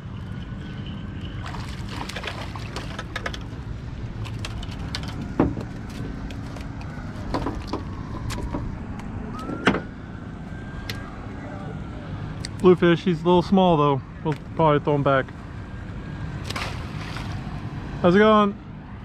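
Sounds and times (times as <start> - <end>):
wind and water noise: 0.0 - 19.0
fish thumping on boat: 1.4 - 3.2, 16.4 - 17.4
water splashing: 1.4 - 3.2, 16.4 - 17.6.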